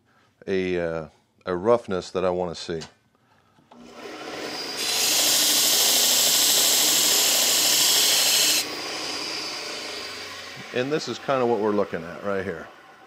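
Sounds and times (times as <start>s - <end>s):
belt sander running: 3.8s - 13.0s
high hiss of sanding metal shaft: 5.3s - 8.6s.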